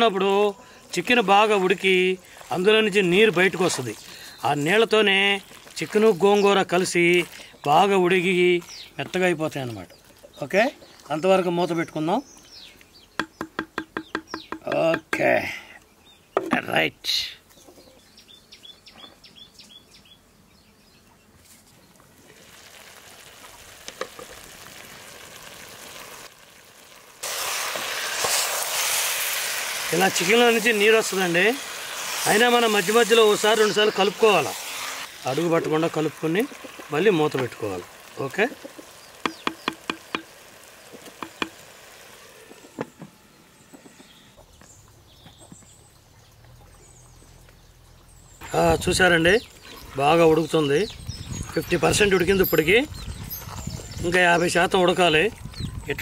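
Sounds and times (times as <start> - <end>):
curry sizzling and bubbling in pot: 0.9 - 9.2, 22.2 - 42.9
bird chirping: 9.8 - 22.0, 38.5 - 41.7, 43.0 - 56.0
wooden spatula knocking clay pot: 13.2 - 15.3, 38.5 - 40.3, 41.2 - 41.6.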